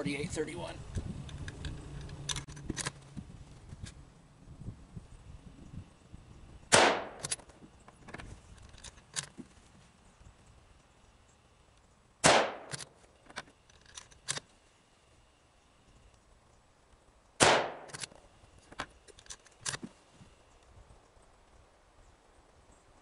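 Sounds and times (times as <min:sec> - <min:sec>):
rifle shots with echo: 0:06.7 - 0:07.3, 0:12.2 - 0:12.8, 0:17.4 - 0:18.0
rifle bolt clicks: 0:06.8 - 0:07.6, 0:12.3 - 0:14.5, 0:17.4 - 0:18.2.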